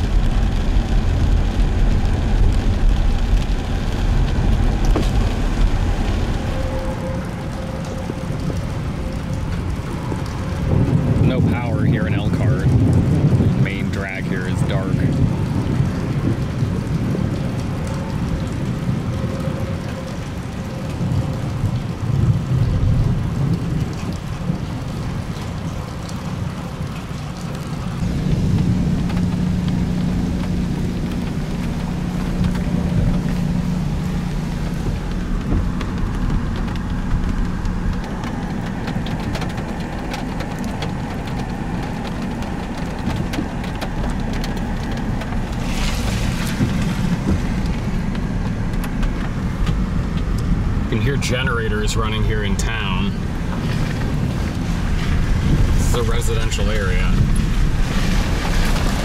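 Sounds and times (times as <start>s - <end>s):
engine and road noise: 0.0s - 59.0s
rain striking a car: 0.0s - 59.0s
low hum: 15.1s - 51.0s.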